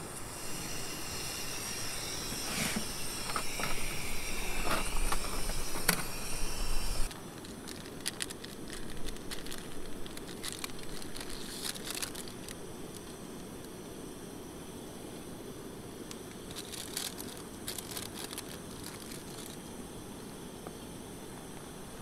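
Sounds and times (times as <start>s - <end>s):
camp stove hissing: 0.0s - 20.7s
faint whining tones: 0.0s - 22.0s
light clicks and crackles: 7.4s - 13.8s.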